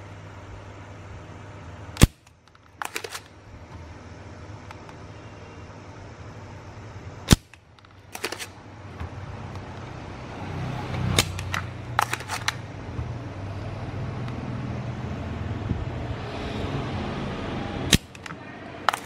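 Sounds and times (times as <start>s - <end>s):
desoldering pump snapping: 2.0s - 3.3s, 11.0s - 12.6s, 17.9s - 19.0s.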